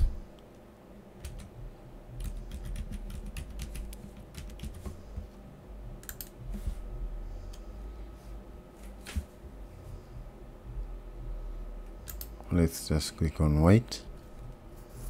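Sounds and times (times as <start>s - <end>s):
computer keyboard typing: 1.2s - 1.5s, 2.2s - 5.0s, 6.0s - 6.4s.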